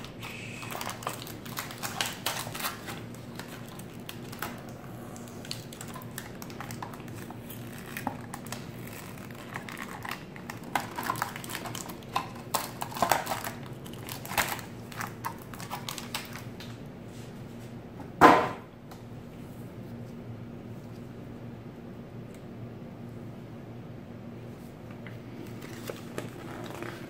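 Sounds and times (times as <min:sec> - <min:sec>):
plastic bag crinkling: 0:00.0 - 0:16.7, 0:25.4 - 0:27.0
low steady hum: 0:00.0 - 0:27.0.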